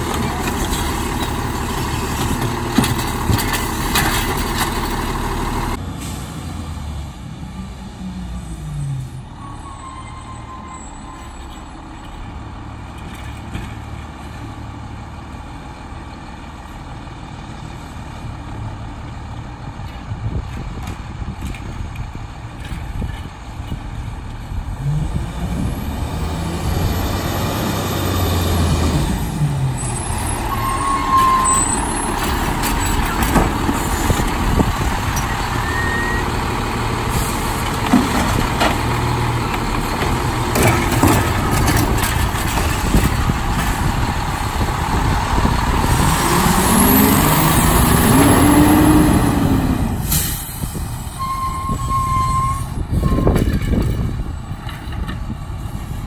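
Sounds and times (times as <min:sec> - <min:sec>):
garbage truck diesel engine revving: 0:00.0 - 0:09.1, 0:24.6 - 0:51.2
air brake hiss: 0:50.0 - 0:50.8.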